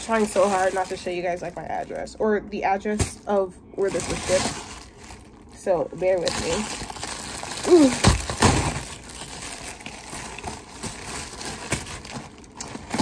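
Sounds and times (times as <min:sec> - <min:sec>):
packaging crinkling and rustling: 0:00.0 - 0:13.0
mailer tearing open: 0:06.2 - 0:13.0.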